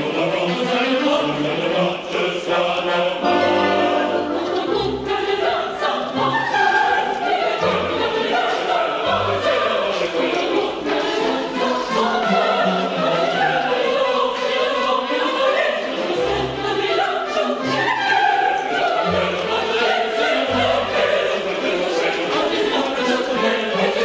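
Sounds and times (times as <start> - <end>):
opera chorus singing: 0.0 - 24.0
orchestra playing: 3.2 - 7.0.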